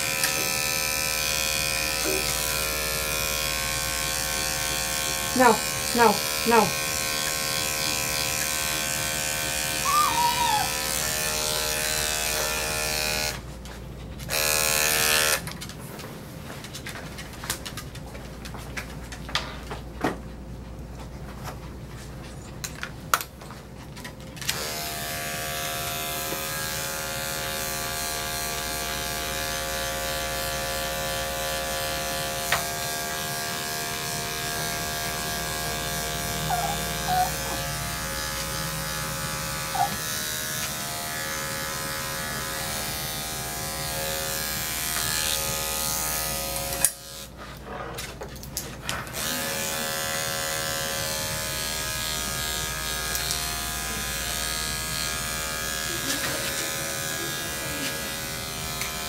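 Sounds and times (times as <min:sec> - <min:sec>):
electric clippers motor hum: 0:00.0 - 0:13.4, 0:14.3 - 0:15.5, 0:24.4 - 0:47.4, 0:49.1 - 0:59.0.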